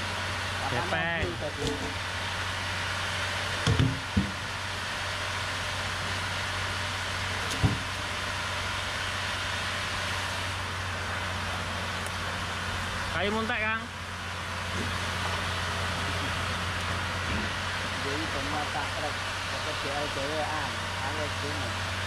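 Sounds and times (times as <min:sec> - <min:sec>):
engine hum: 0:00.0 - 0:22.0
logs knocking onto truck: 0:01.2 - 0:02.1, 0:03.6 - 0:04.5, 0:07.5 - 0:08.0.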